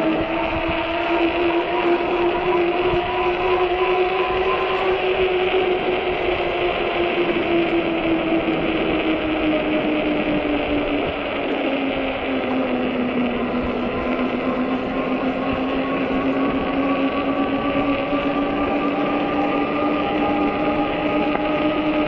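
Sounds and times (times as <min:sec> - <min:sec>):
electric hub motor whining: 0:00.0 - 0:22.0
wind on microphone: 0:00.0 - 0:22.0.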